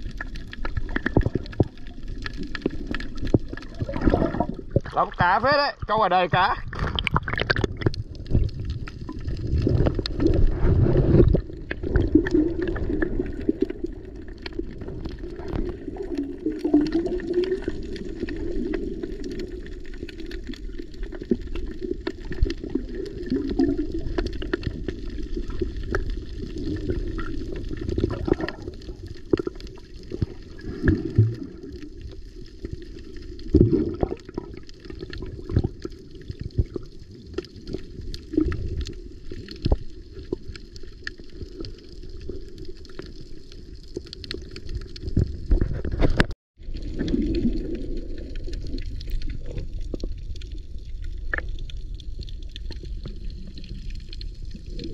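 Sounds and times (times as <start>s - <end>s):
muffled water sloshing: 0.0s - 21.2s.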